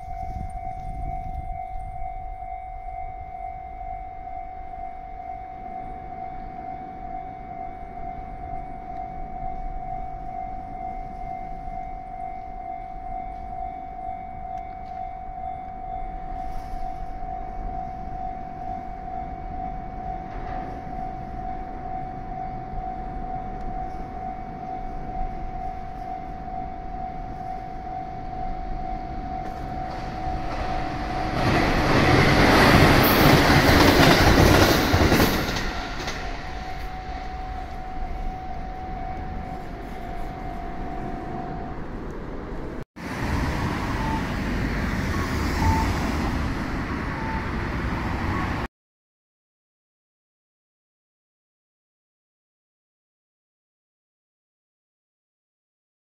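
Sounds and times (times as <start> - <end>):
level crossing warning bell: 0.0 - 48.7
road traffic with cars passing: 0.0 - 48.7
train running noise with whine: 0.0 - 48.7
low rumble: 35.6 - 43.7.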